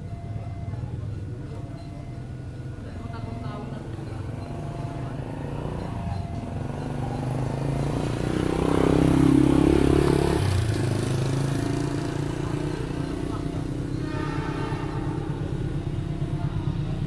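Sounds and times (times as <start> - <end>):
vehicle engine passing by: 4.1 - 17.0.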